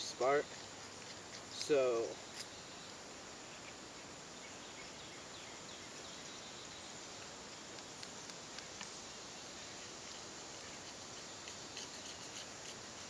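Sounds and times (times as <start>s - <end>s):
outdoor background hiss: 0.0s - 13.0s
knife scraping fire bar: 0.4s - 2.6s, 10.0s - 13.0s.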